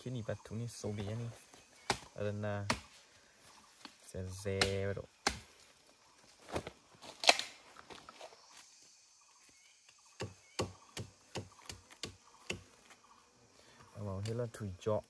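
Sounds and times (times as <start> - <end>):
feathers plucked with sharp snaps: 6.6 - 7.6.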